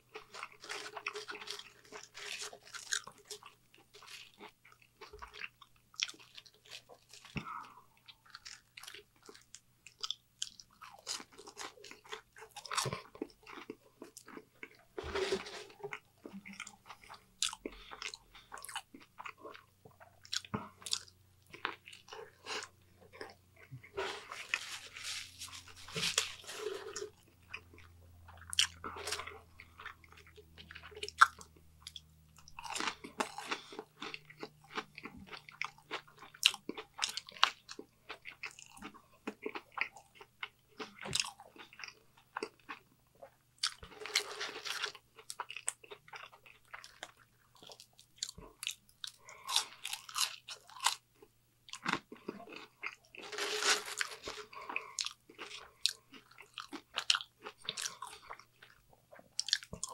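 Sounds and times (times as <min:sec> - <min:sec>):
chewing and crunching fries: 0:00.0 - 0:59.9.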